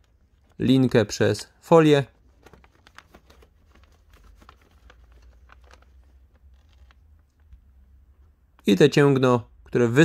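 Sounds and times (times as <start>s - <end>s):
plastic sheet crinkling: 0.0s - 7.8s.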